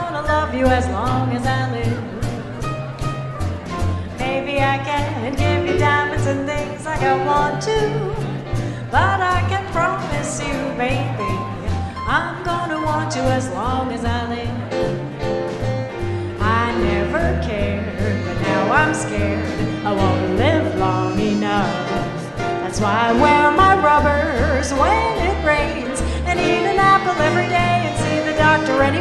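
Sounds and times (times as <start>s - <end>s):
upright bass walking: 0.0s - 29.0s
sliding melody line: 8.9s - 29.0s.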